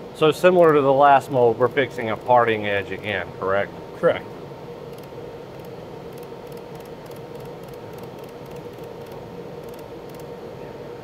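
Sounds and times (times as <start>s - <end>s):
welding station whirring hum: 0.0s - 11.0s
high-pitched laser welder ticks: 4.9s - 10.3s.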